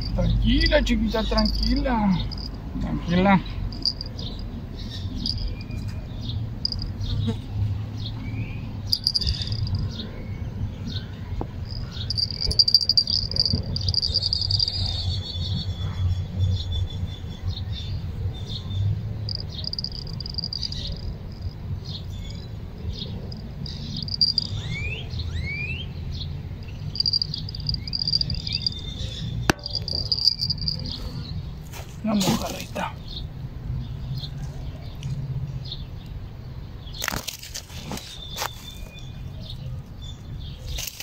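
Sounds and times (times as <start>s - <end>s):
insects trilling: 0.0s - 2.7s, 3.4s - 5.6s, 6.6s - 7.5s, 8.9s - 9.9s, 11.6s - 15.3s, 19.2s - 22.6s, 23.2s - 24.9s, 26.6s - 31.4s
rising bird chirps: 8.9s - 10.5s.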